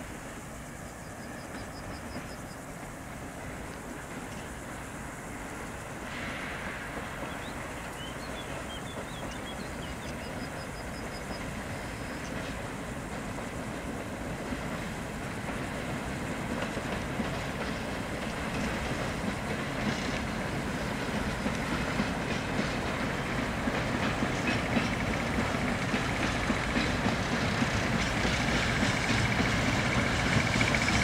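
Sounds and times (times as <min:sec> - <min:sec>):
diesel locomotive engine drone: 0:00.0 - 0:31.0
wheels clicking over rail joints: 0:11.2 - 0:31.0.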